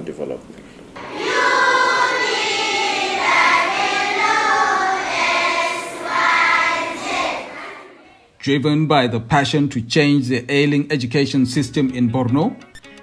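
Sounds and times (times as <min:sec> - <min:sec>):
children singing in unison: 0:01.0 - 0:08.3.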